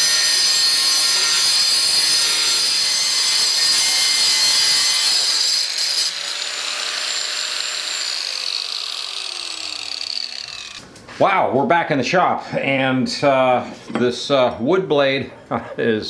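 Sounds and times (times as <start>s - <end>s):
angle grinder cutting steel: 0.0s - 10.8s.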